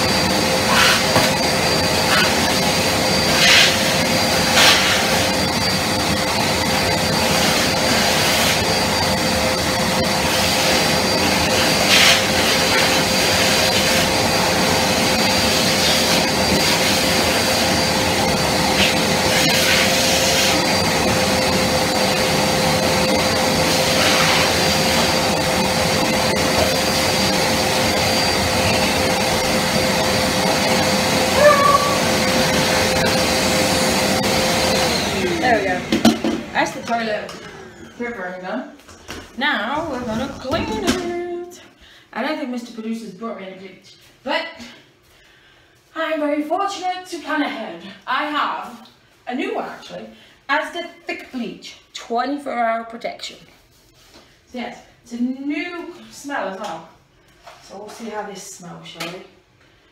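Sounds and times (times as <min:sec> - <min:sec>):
vacuum cleaner motor whining: 0:00.0 - 0:38.6.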